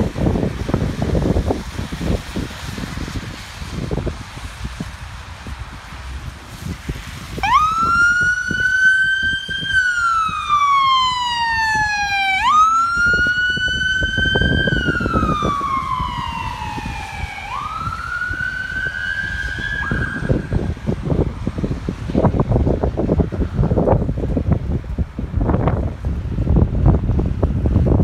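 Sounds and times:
ambulance siren wailing: 7.4 - 20.9.

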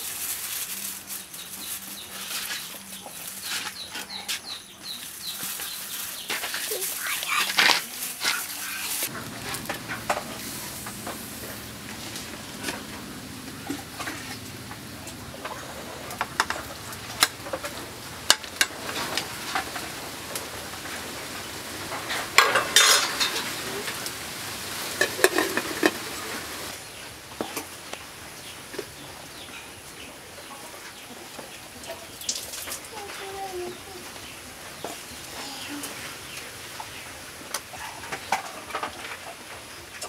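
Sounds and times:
water boiling in a pot: 4.8 - 26.8
metal ladle scraping a pot: 22.4 - 23.4, 25.0 - 26.0.

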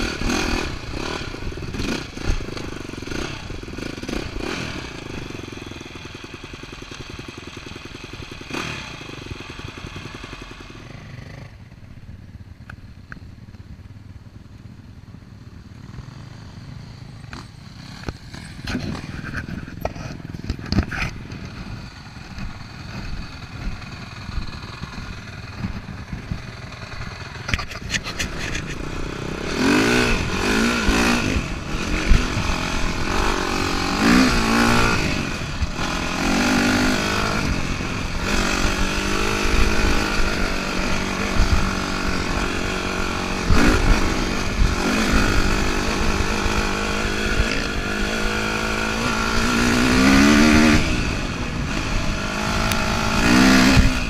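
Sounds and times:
dirt bike engine revving: 0.0 - 11.6, 15.8 - 54.0.

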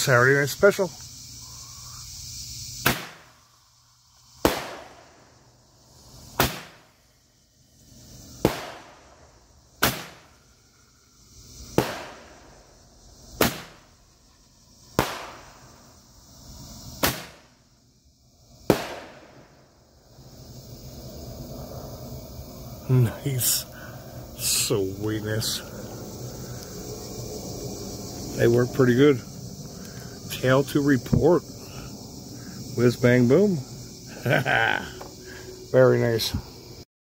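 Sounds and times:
roman candle hiss and pop: 2.7 - 3.4, 4.1 - 5.3, 6.1 - 7.0, 8.2 - 10.4, 11.6 - 12.6, 13.4 - 14.0, 14.9 - 15.9, 16.8 - 17.6, 18.6 - 19.6.

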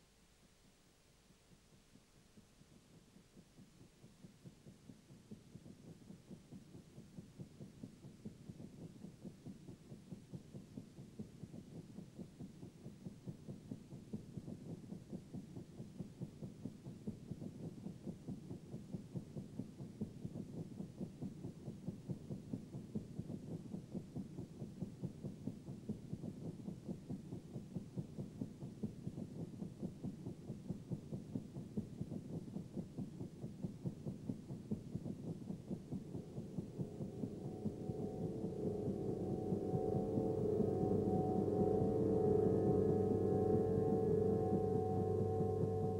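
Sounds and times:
low electronic pulse: 34.8 - 45.9.

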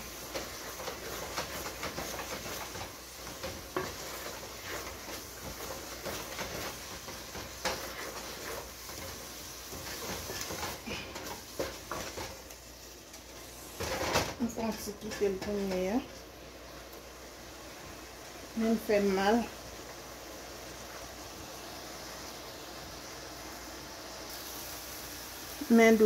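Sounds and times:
wooden spoon stirring sticky mixture: 0.0 - 12.4.

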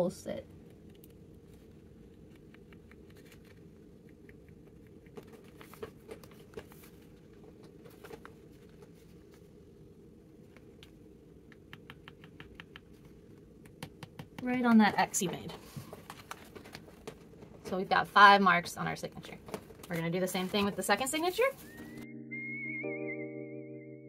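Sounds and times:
low steady hum: 0.0 - 22.3
pencil ticking on paper: 11.5 - 13.0.

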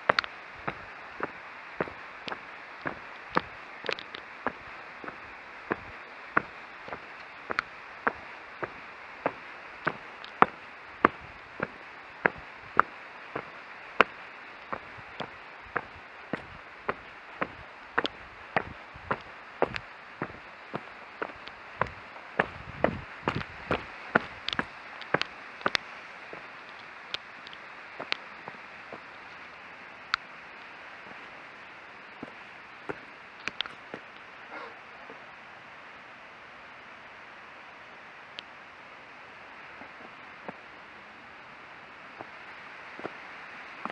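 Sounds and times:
footsteps on stony dirt path: 0.0 - 29.5, 31.0 - 34.2, 43.0 - 43.2
steady hiss: 0.0 - 43.9.

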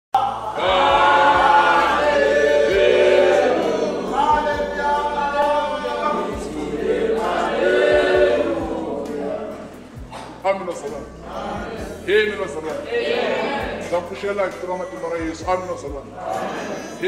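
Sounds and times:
choir singing gospel: 0.2 - 17.0.

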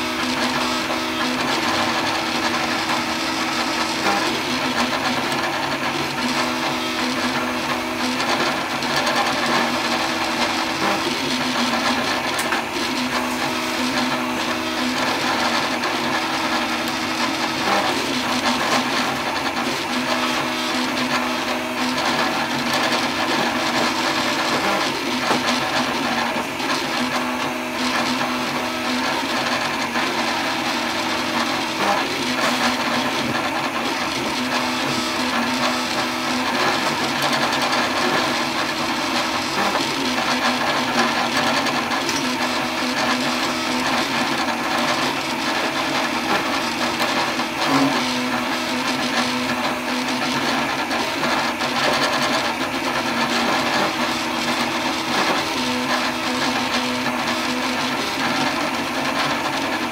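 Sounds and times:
cooling fans whirring: 0.0 - 59.9.

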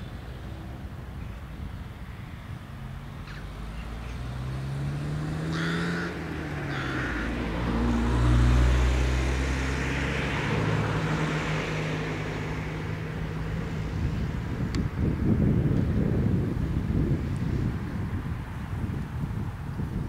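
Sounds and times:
passing vehicle engine hum: 0.0 - 20.0
rook cawing: 5.4 - 7.7.

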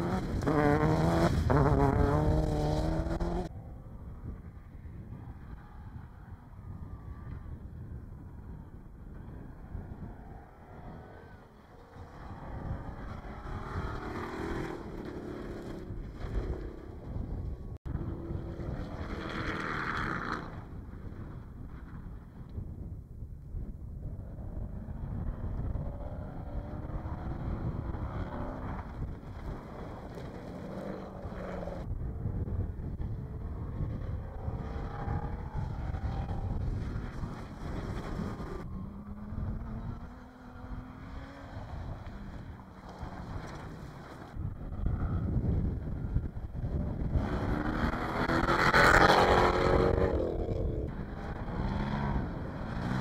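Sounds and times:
race car engine revving: 0.0 - 3.5, 46.9 - 53.0
truck engine revving hard: 0.0 - 3.5
wind buffeting on microphone: 0.0 - 19.5, 20.4 - 53.0.

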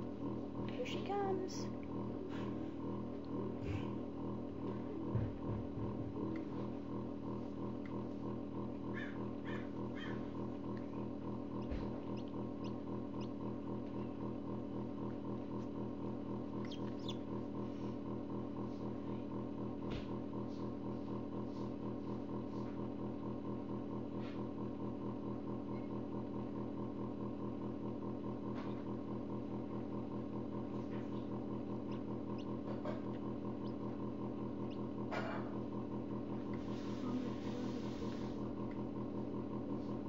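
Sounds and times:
incubator fan humming: 0.0 - 40.0
chick pecking eggshell: 16.5 - 17.4, 31.7 - 34.9.

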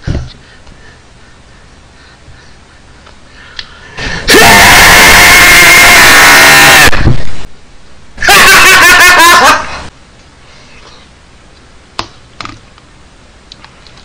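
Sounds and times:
man shrieking laugh distorted: 4.3 - 6.9, 8.2 - 9.7.

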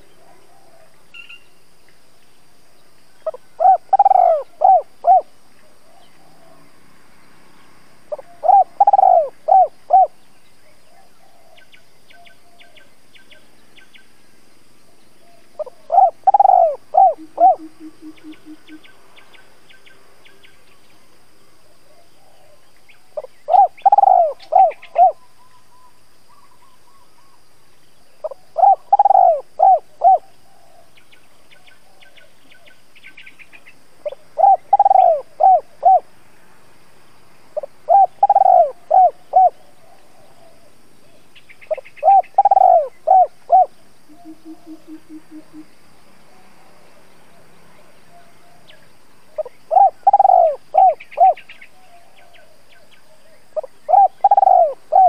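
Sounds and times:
dove cooing: 3.2 - 6.6, 8.1 - 10.2, 15.2 - 18.9, 23.2 - 27.4, 28.2 - 31.0, 34.0 - 36.1, 37.6 - 46.4, 47.3 - 55.0.

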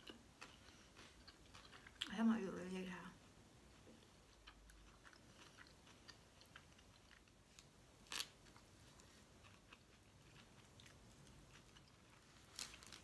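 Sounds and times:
faint chewing mouth clicks: 3.8 - 7.4.

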